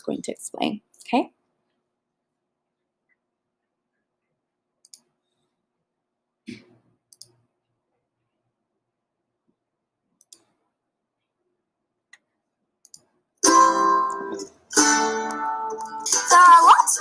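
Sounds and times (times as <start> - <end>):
computer mouse clicks: 4.8 - 5.1, 7.1 - 7.4, 10.2 - 10.6, 12.1 - 13.1
music with plucked strings: 13.4 - 17.0.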